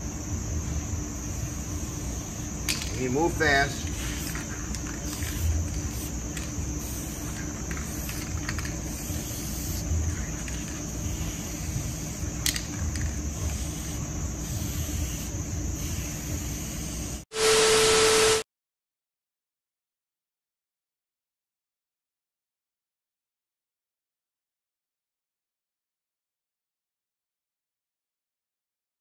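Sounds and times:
faint hiss: 1.3 - 12.5
burst of noise with held tone: 13.4 - 18.4.

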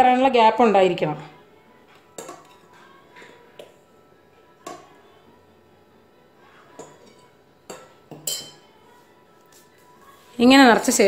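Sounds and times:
faint background music: 0.0 - 11.0
metal pot clinks and knocks: 6.8 - 8.6.

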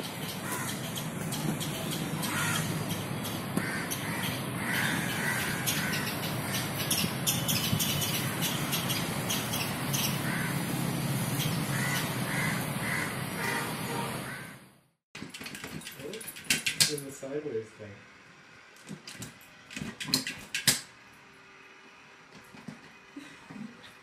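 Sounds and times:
crows cawing: 0.4 - 0.9, 2.2 - 2.8, 3.6 - 6.7, 10.2 - 10.7, 11.7 - 14.6.

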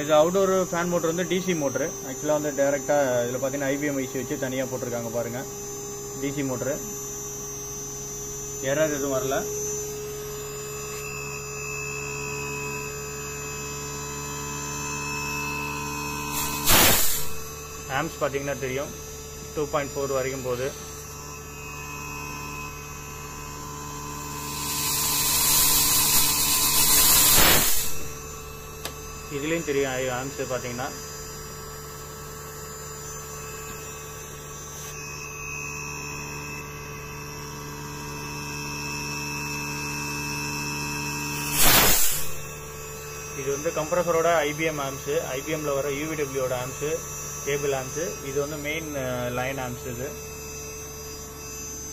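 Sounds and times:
air conditioner compressor humming: 0.0 - 51.9
thin high whine: 0.0 - 51.9
short loud noise burst: 16.4 - 17.4, 24.6 - 28.1, 41.5 - 42.5.

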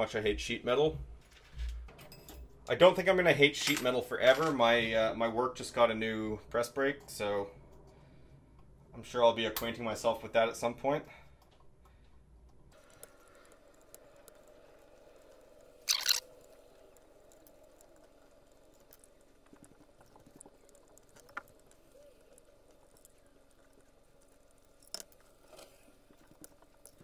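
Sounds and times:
faint steady hum: 0.0 - 27.0
small metal clicks: 11.4 - 27.0.

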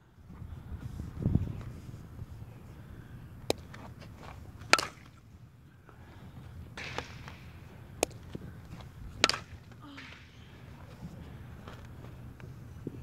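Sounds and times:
bat striking ball: 4.6 - 5.2, 6.7 - 10.4.

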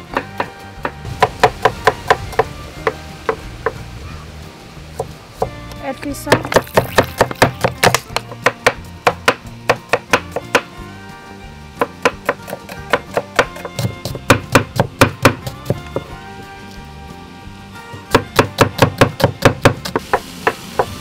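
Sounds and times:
guitar music: 0.0 - 21.0
knife chopping on wooden board: 6.3 - 10.7, 11.8 - 16.2, 18.0 - 21.0.

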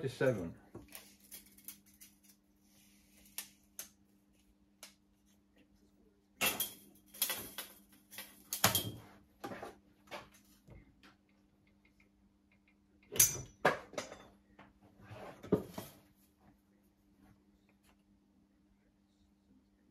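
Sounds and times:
faint steady hum: 0.0 - 19.9.

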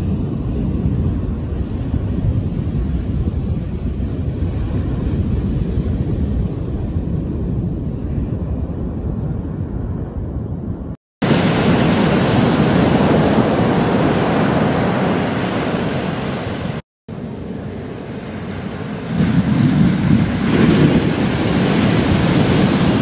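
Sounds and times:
wind buffeting microphone: 0.0 - 16.8, 17.4 - 23.0
waves crashing: 11.2 - 23.0.

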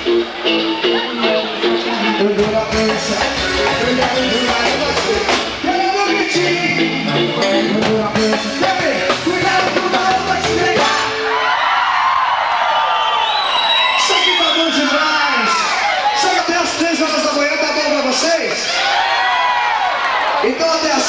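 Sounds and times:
live dance band playing: 0.0 - 11.8, 13.6 - 18.9
crowd shouting and cheering: 0.0 - 21.0
person singing: 0.1 - 11.3
steady drum beat: 2.3 - 11.2.

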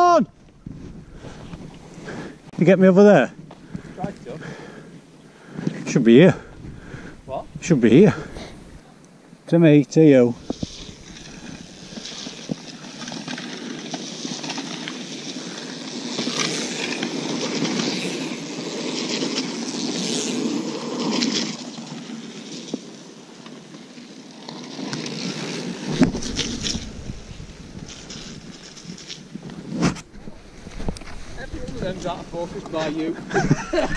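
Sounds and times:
bike tyres rolling over gravel: 0.0 - 8.8, 9.7 - 33.9.

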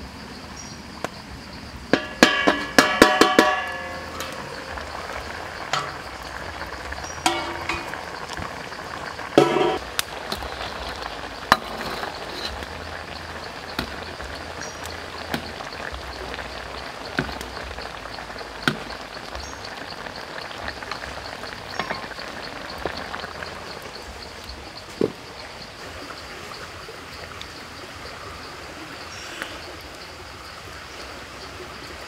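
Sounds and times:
sauce sizzling in a wok: 1.4 - 26.2.

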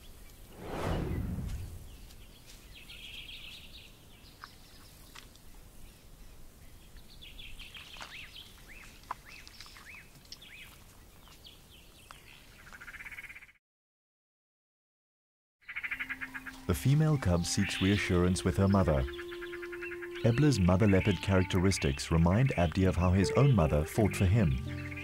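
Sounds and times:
quick downward-sweeping chirps: 0.5 - 2.1
birds chattering: 15.7 - 25.0.

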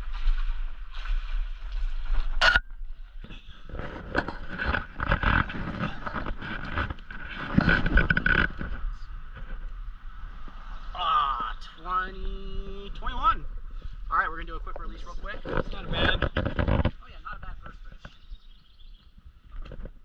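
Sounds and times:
water splashing: 0.0 - 13.4
landing net scraping and rustling: 3.7 - 9.6.

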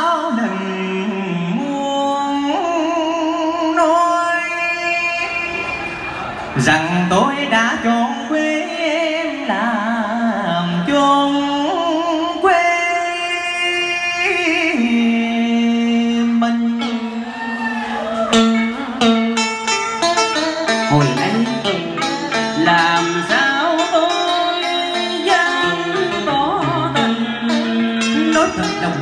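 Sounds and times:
man singing into microphone: 0.0 - 5.8, 6.5 - 17.4, 20.9 - 29.0
instrumental accompaniment: 14.8 - 29.0.

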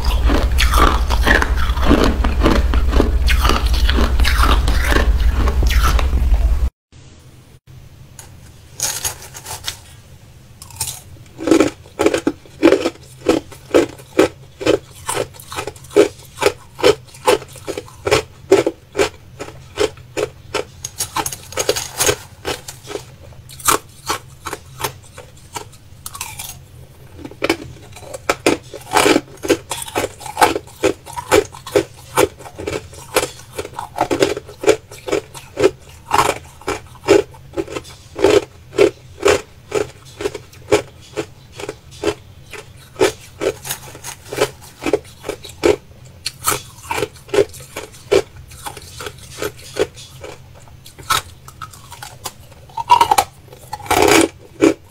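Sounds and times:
ice being chewed: 0.0 - 6.2, 10.6 - 54.9
metal spoon scraping ice: 8.8 - 9.9, 10.7 - 25.6, 27.4 - 45.6.

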